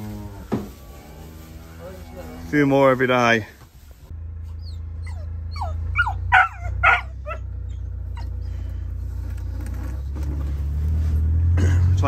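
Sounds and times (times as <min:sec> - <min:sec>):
dog whining and yelping: 0:04.5 - 0:08.4.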